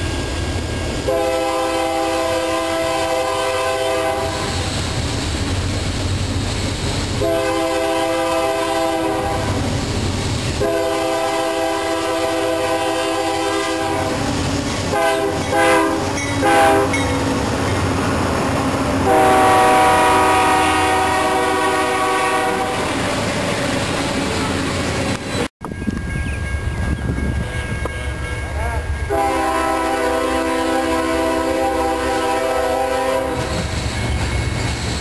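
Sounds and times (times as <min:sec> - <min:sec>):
train rumble and clatter: 0:00.0 - 0:35.0
locomotive air horn: 0:01.0 - 0:04.7, 0:07.2 - 0:09.7, 0:10.6 - 0:17.2, 0:19.0 - 0:23.0, 0:29.1 - 0:33.7.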